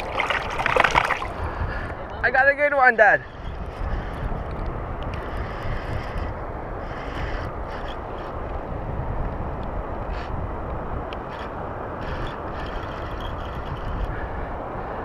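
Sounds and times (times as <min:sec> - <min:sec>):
wind rushing on microphone: 0:00.0 - 0:15.0
faint ticks: 0:04.4 - 0:06.3.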